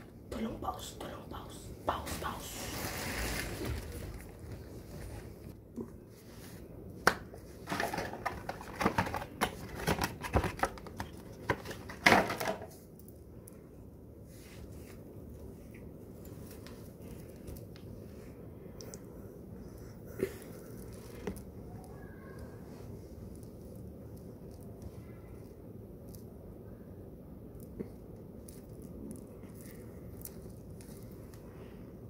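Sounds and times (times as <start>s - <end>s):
packaging crinkling and tapping: 7.6s - 12.6s.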